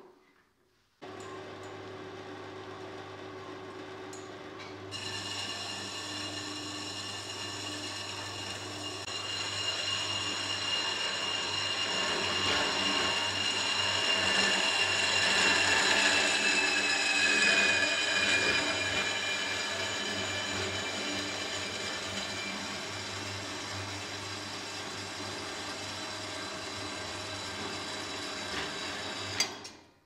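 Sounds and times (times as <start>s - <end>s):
band saw motor humming: 4.9s - 28.3s
saw blade whining through metal: 4.9s - 29.8s.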